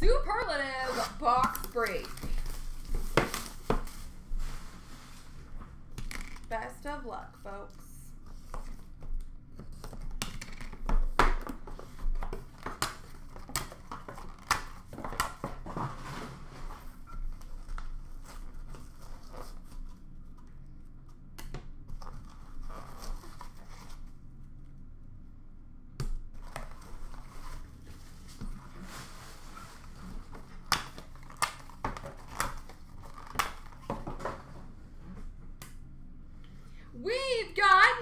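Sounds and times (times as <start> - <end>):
packaging crinkling and tearing: 0.8 - 4.2, 12.4 - 15.7, 28.8 - 34.2.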